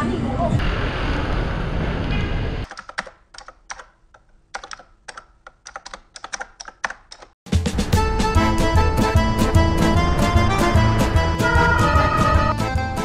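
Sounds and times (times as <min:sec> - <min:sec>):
keyboard key clicks: 0:02.6 - 0:07.4
background music: 0:07.5 - 0:13.0.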